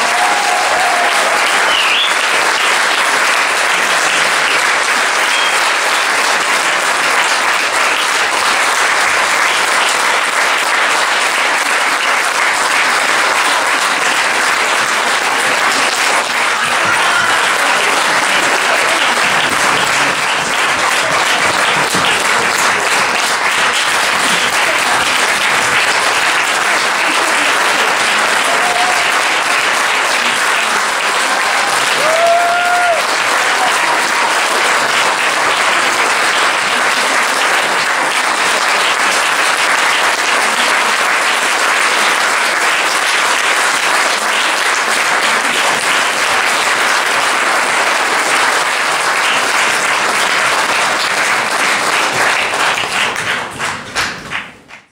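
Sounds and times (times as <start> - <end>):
voices cheering: 0.0 - 2.7, 15.0 - 23.4, 24.0 - 34.8
audience applauding: 0.0 - 54.9.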